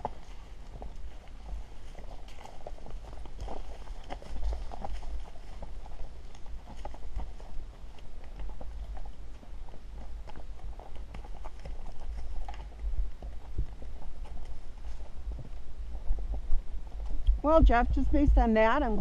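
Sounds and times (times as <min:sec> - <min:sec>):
hooves clip-clopping on stones: 0:00.0 - 0:19.0
steady low rumble: 0:12.6 - 0:19.0.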